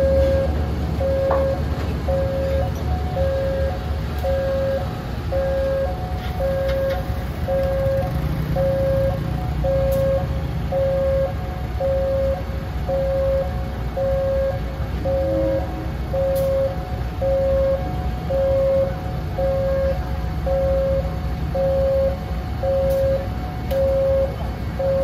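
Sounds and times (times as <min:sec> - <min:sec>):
diesel engine idling: 0:00.0 - 0:25.0
level crossing alarm beeping: 0:00.0 - 0:25.0.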